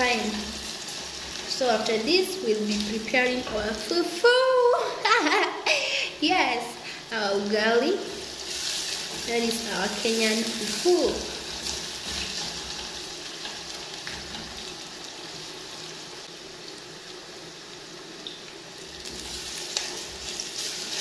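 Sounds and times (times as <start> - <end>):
onions sizzling in a pot: 0.0 - 21.0
wooden spatula stirring and scraping: 8.2 - 14.9.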